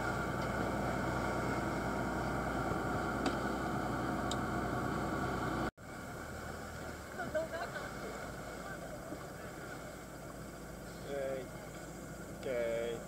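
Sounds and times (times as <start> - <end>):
boat engine running: 0.0 - 13.0
wind and water hiss: 0.0 - 13.0.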